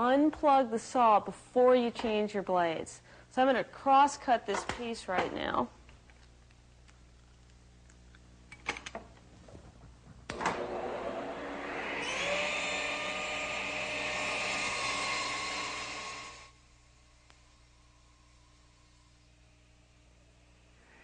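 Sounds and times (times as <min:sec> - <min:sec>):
table saw cutting board: 0:10.4 - 0:16.5.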